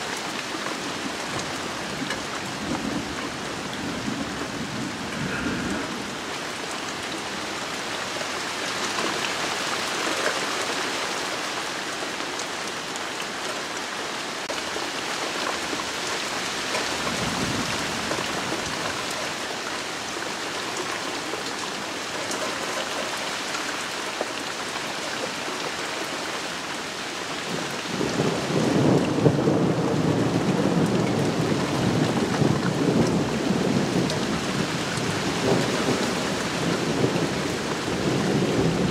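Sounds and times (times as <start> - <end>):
rain falling on leaves: 0.0 - 38.9
thunder rumbling: 1.9 - 6.6, 27.9 - 38.9.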